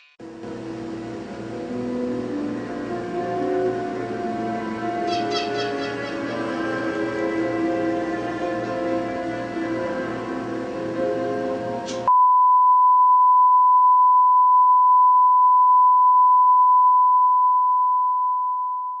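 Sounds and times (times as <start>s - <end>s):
electronic music with held chords: 1.8s - 12.1s.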